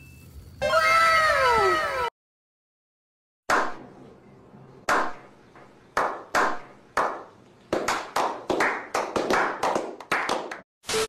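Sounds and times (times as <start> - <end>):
group of people clapping: 6.0 - 10.7.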